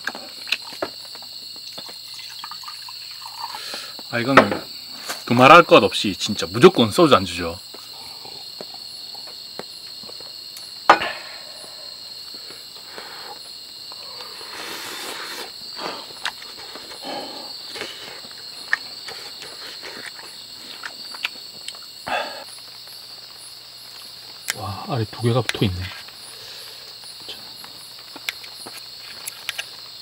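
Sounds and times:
crickets chirring: 0:00.0 - 0:30.0
sharp knock: 0:10.9 - 0:11.4.

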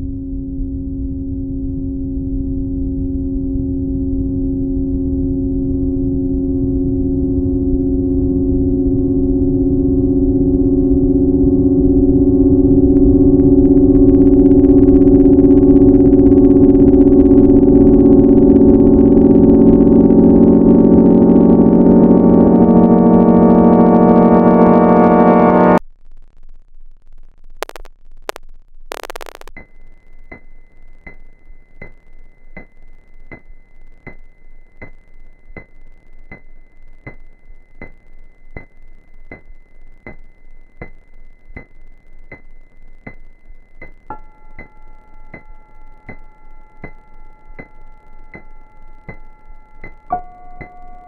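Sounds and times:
low held synth tones: 0:00.0 - 0:25.8, 0:29.0 - 0:51.0
buzzing synth chord: 0:08.2 - 0:25.8, 0:29.0 - 0:51.0
ticking pulse: 0:12.2 - 0:25.8, 0:27.6 - 0:51.0
high synth tone: 0:13.2 - 0:25.8, 0:33.3 - 0:51.0
static bursts: 0:13.6 - 0:30.4.

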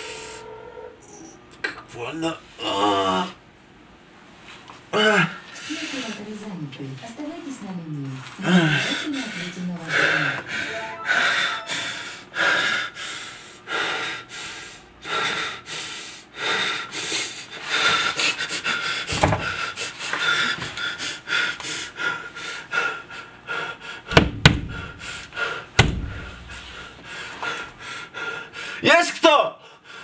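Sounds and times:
man panting: 0:08.4 - 0:28.8, 0:29.6 - 0:30.0
dull thump: 0:24.1 - 0:24.9, 0:25.8 - 0:26.5
sharp knocks: 0:24.1 - 0:25.0, 0:25.8 - 0:26.5.

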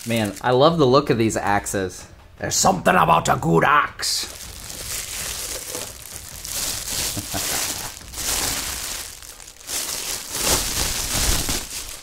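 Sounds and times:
plastic wrapping crinkling: 0:00.0 - 0:00.8, 0:04.2 - 0:12.0.

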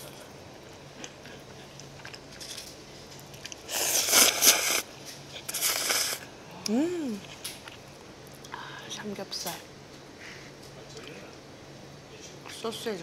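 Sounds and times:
person slurping noodles: 0:03.6 - 0:06.3.

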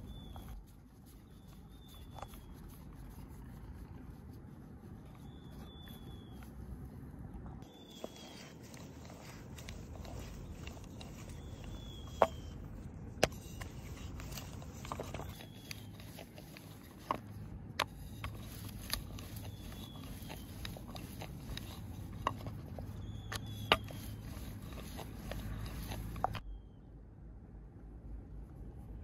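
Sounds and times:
rolling pin rolling dough: 0:07.6 - 0:12.6, 0:13.2 - 0:26.4.

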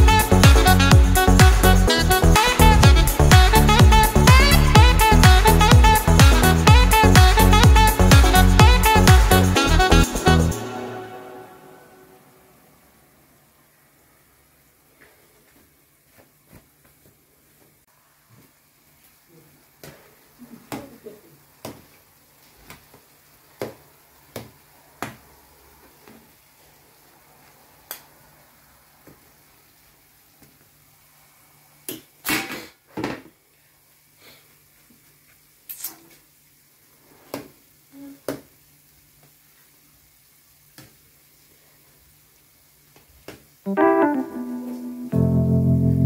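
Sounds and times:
dough frying in oil sizzle: 0:21.4 - 0:32.2, 0:33.7 - 0:43.7.

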